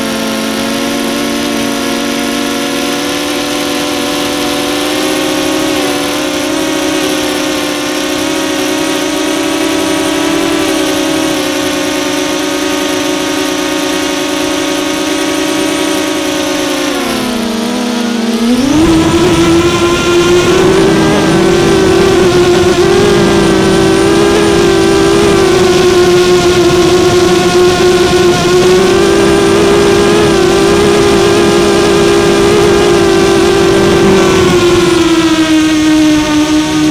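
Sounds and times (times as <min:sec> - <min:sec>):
drone motors and propellers: 0:00.0 - 0:36.9
rushing noise: 0:18.1 - 0:31.4.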